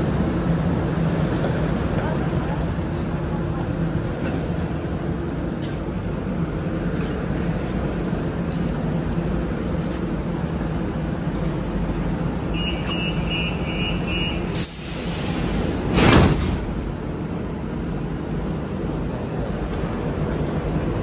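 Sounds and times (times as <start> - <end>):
standing train hum: 0.0 - 21.0
train doors shutting: 12.4 - 17.1
sharp hiss of air: 14.5 - 15.8.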